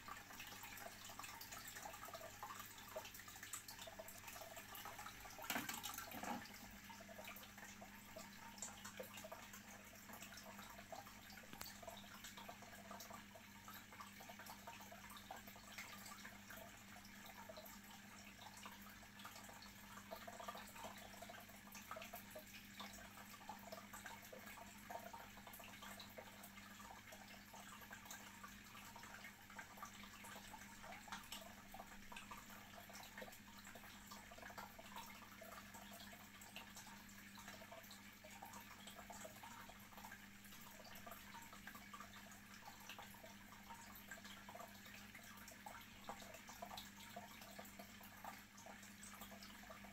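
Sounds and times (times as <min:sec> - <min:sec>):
aquarium water bubbling: 0:00.0 - 0:49.9.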